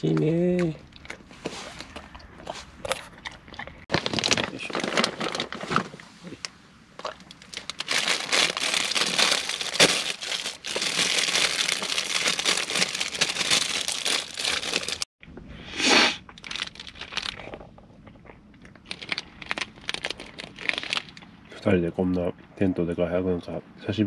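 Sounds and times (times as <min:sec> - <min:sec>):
plastic wrapper crinkling and tearing: 0:03.9 - 0:05.9, 0:07.0 - 0:15.1, 0:16.4 - 0:17.7, 0:18.6 - 0:21.2.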